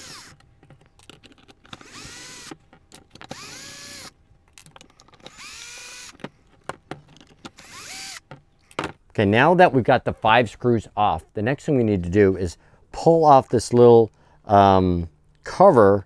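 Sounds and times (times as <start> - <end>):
cordless drill whirring: 0.0 - 0.3, 1.8 - 2.5, 3.3 - 4.1, 5.2 - 6.2, 7.6 - 8.2.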